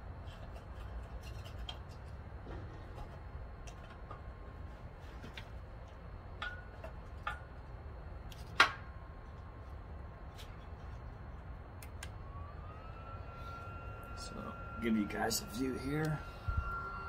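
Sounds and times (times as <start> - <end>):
stove fan whine: 0.0 - 17.0
sticks and metal stove clicking: 6.4 - 7.5.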